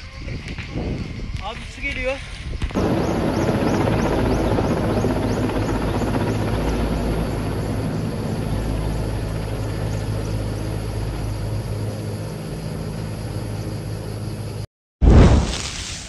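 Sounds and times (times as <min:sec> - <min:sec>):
helicopter rotor overhead: 0:02.7 - 0:14.6.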